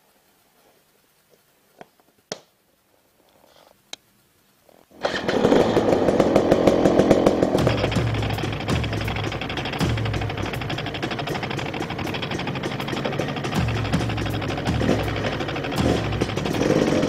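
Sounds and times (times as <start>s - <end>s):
heavy rock music: 7.5s - 17.0s.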